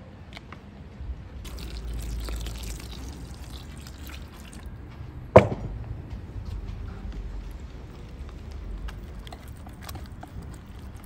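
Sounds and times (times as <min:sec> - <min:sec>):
water pouring into bowl: 0:01.4 - 0:04.8
sharp knock: 0:05.4 - 0:05.8.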